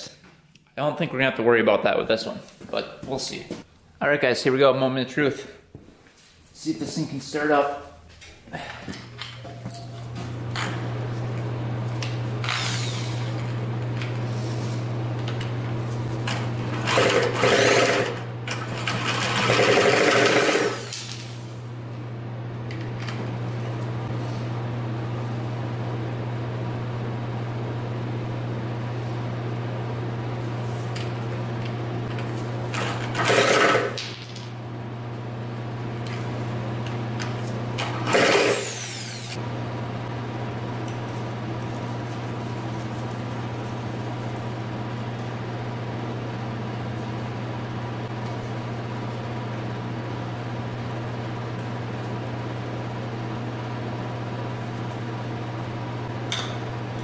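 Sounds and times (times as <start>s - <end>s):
drill cranking engine: 12.4s - 13.5s, 16.3s - 20.9s, 32.7s - 34.0s, 37.8s - 39.4s
steady low hum: 20.5s - 33.3s, 34.2s - 57.0s.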